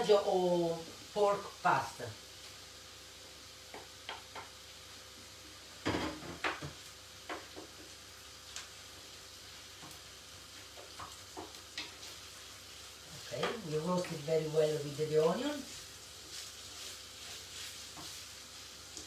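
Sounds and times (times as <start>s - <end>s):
meat sizzling in a frying pan: 0.0s - 19.0s
spoon scraping and knocking pan: 15.7s - 18.3s.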